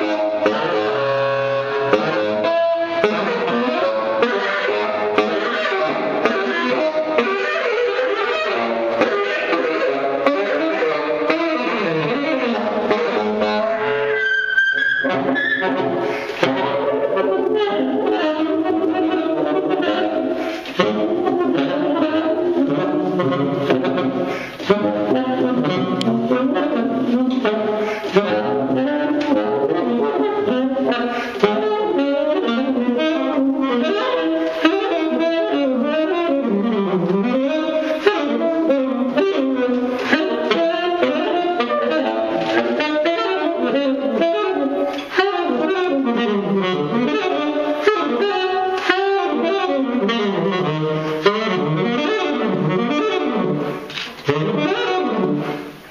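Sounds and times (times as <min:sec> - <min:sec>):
solo saxophone: 0:00.0 - 0:55.9
player breathing: 0:16.0 - 0:16.4, 0:20.3 - 0:20.8, 0:24.2 - 0:24.7, 0:27.7 - 0:28.2, 0:31.1 - 0:31.4.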